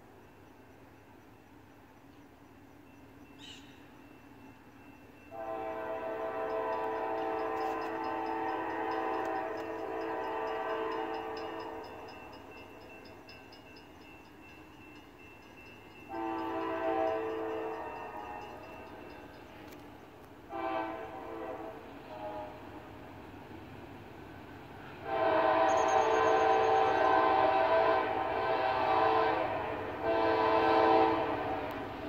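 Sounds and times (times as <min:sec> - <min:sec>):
crossing bell ticking: 0:00.1 - 0:20.2, 0:25.7 - 0:27.1
locomotive horn blasts: 0:05.3 - 0:12.2, 0:16.1 - 0:19.8, 0:20.5 - 0:22.9, 0:25.0 - 0:31.9.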